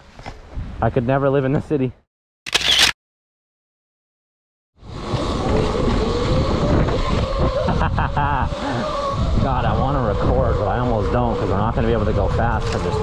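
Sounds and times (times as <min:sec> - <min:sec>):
electric dirt bike riding: 0:04.9 - 0:13.0.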